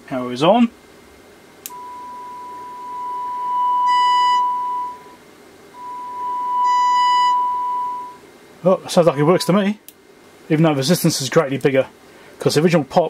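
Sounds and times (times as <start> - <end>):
steady test tone from speaker: 1.7 - 9.8.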